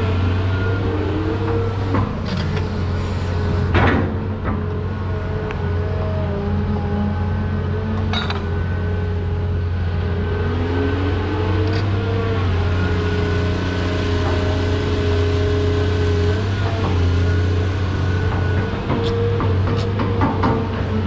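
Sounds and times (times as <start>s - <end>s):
diesel engine droning: 0.0s - 21.0s
engine knocks: 16.5s - 21.0s.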